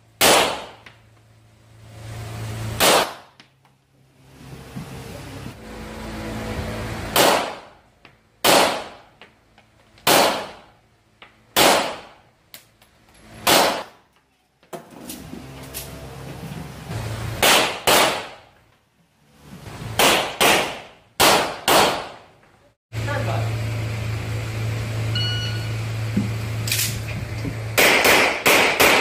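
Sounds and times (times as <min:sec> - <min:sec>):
pistol shots echoing indoors: 0:00.2 - 0:00.8, 0:02.8 - 0:03.2, 0:08.4 - 0:09.0, 0:10.0 - 0:10.7, 0:11.6 - 0:12.2, 0:17.4 - 0:18.4, 0:20.0 - 0:22.2, 0:27.8 - 0:29.0.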